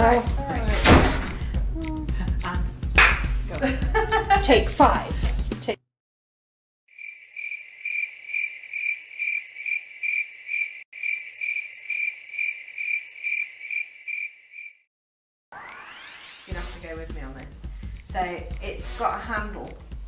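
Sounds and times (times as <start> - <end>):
cricket chirping: 6.9 - 14.8.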